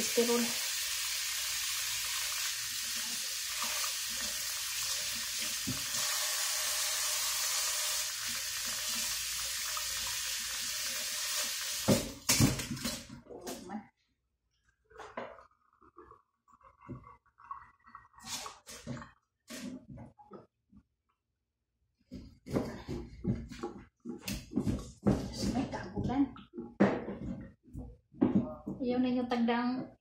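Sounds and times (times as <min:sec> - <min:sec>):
tap water running into sink: 0:00.0 - 0:13.0
clatters and knocks in sink: 0:11.8 - 0:13.7, 0:22.1 - 0:28.8.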